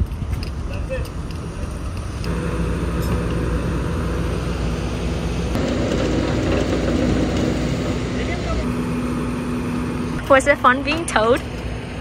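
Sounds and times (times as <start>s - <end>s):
tow truck engine droning: 1.1s - 12.0s.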